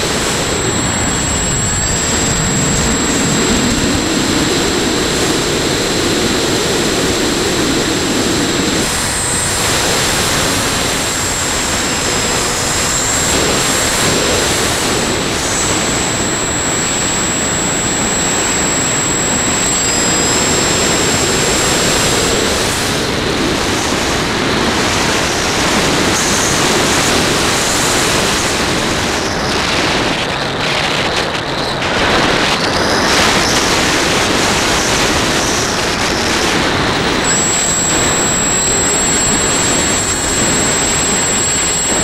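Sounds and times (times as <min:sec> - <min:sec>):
model plane motor: 0:00.0 - 0:23.1, 0:36.9 - 0:42.0
thin high whine: 0:00.0 - 0:28.8, 0:33.1 - 0:42.0.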